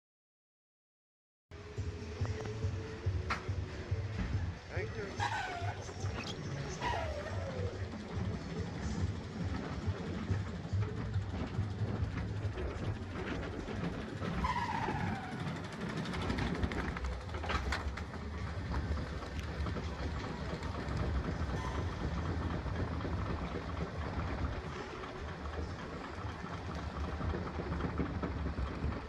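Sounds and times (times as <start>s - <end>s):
roller coaster rumbling on track: 1.6s - 29.0s
falling squeal: 5.1s - 8.0s, 14.2s - 15.8s, 21.5s - 22.6s.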